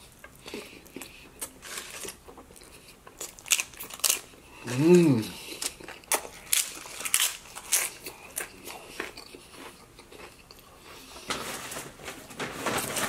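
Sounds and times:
crunching tortilla chip: 1.4 - 4.3, 5.6 - 10.6
paper napkins rustling: 11.3 - 13.0.

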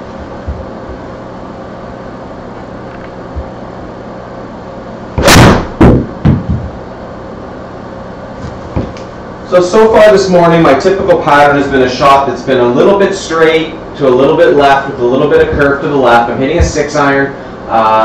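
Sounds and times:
ball smacking into screen: 5.2 - 6.7.

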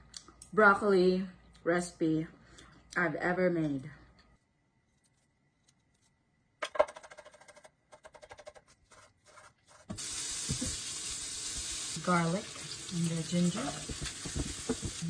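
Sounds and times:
bacon sizzling in frying pan: 9.9 - 15.0.

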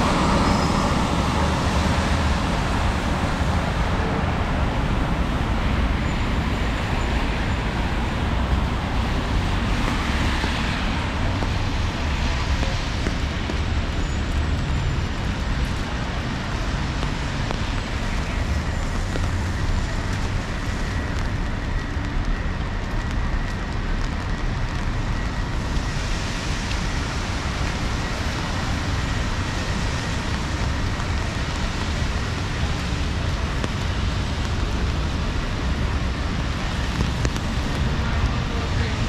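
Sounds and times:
passing traffic rumble: 0.0 - 39.0
rain falling: 0.0 - 39.0.

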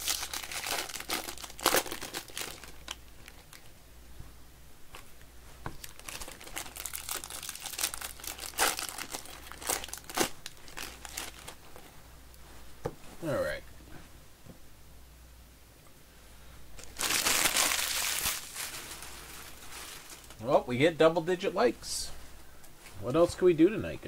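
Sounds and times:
card wrappers crinkling and tearing: 0.0 - 3.7, 5.8 - 11.6, 16.8 - 20.4.

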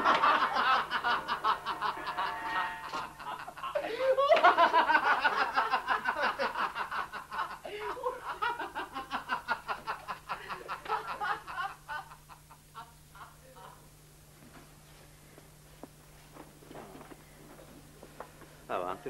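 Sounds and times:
men laughing: 0.0 - 13.9.

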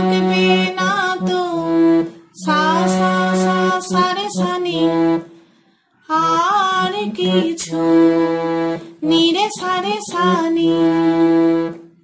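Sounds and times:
woman singing: 0.0 - 5.3, 6.0 - 11.8
harmonium: 0.0 - 5.4, 6.2 - 12.0.

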